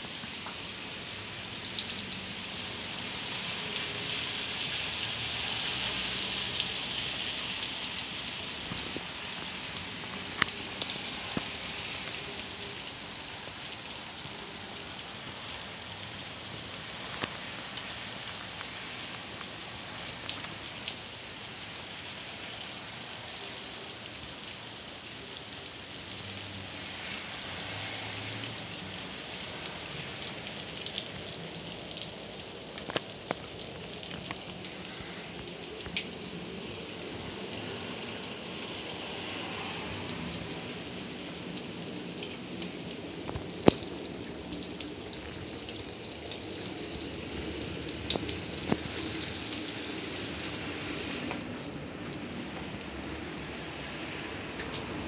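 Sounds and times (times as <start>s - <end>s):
car tyres hissing on wet street: 0.0s - 55.0s
heavy rain: 0.0s - 55.0s.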